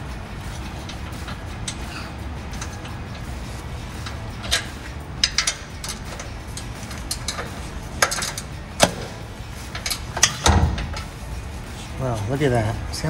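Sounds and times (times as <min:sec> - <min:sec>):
exhaust pipe clunk: 0:00.0 - 0:11.6
wrench clicking on metal: 0:04.0 - 0:11.1.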